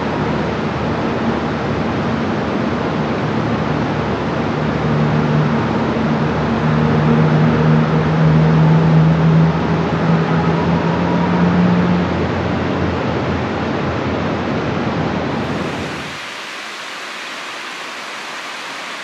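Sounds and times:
low mechanical hum: 0.0 - 19.0
water rushing over spillway: 15.3 - 19.0.

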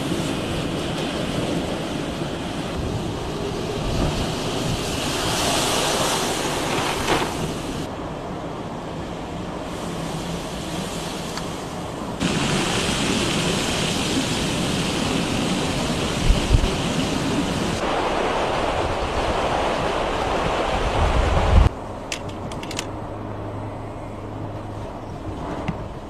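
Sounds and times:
surging floodwater: 0.0 - 8.1, 8.7 - 21.8
driving rain: 0.0 - 22.9
strong storm wind: 0.0 - 22.9
wind thumping on microphone: 12.2 - 21.7
sharp clicks: 22.1 - 22.9.

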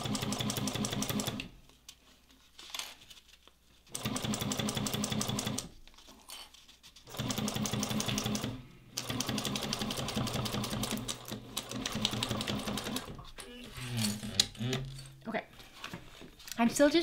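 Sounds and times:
sewing machine stitching: 3.9 - 5.7, 7.1 - 13.2.

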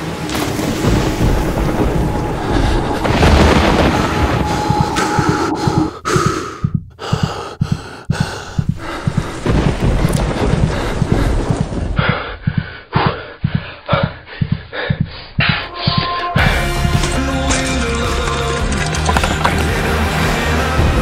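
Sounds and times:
noisy sound effects: 0.4 - 6.0.

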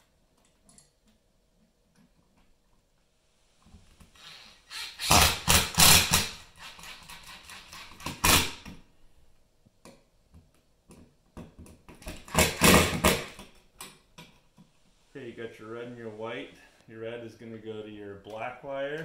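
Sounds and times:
power driver running screws: 4.2 - 8.5.

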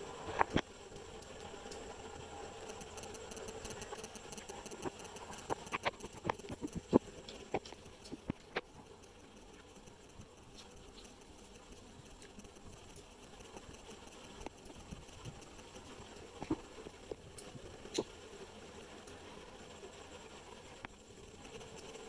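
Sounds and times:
sharp clicks and taps: 2.7 - 16.6.

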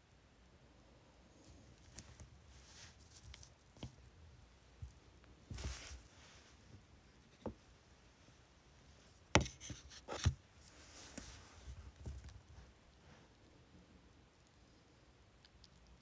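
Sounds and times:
stamp tools tapping and knocking: 9.4 - 10.4.

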